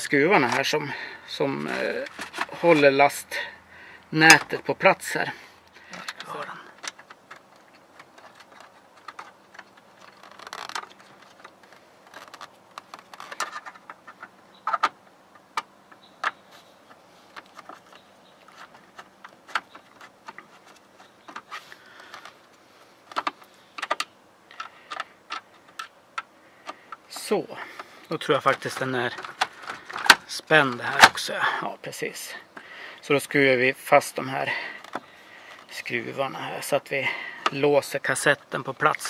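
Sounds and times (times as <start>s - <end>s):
small hard parts clicking: 1.6s - 2.6s, 5.7s - 31.3s, 34.4s - 35.9s.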